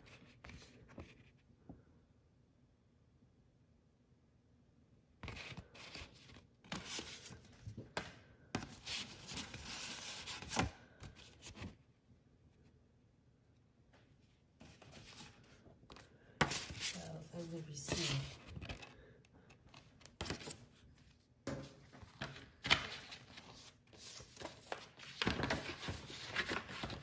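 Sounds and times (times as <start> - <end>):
paper card and envelope rustling: 5.2 - 11.8, 14.6 - 27.0.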